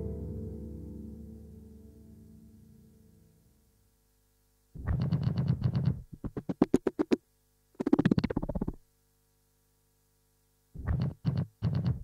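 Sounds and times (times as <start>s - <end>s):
faint steady drone: 0.0s - 4.9s.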